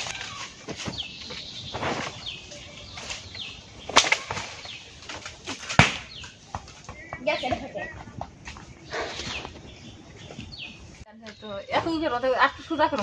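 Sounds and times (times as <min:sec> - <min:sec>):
leaves and branches rustling: 0:00.0 - 0:13.0
wood snapping: 0:03.9 - 0:06.4.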